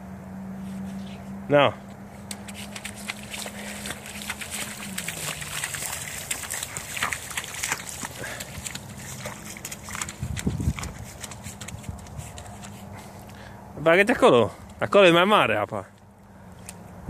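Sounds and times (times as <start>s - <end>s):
boots splashing through puddle: 2.2s - 13.5s.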